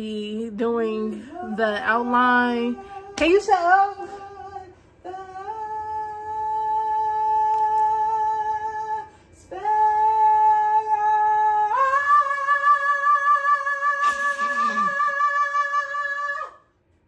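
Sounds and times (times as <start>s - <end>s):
man singing high held notes: 4.2s - 16.6s.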